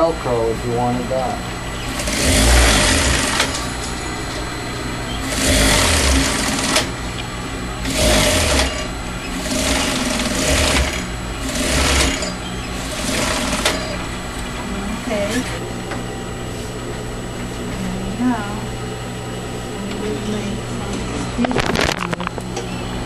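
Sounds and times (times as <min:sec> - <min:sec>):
sewing machine stitching: 0:01.9 - 0:03.7, 0:05.2 - 0:06.9, 0:07.8 - 0:14.0.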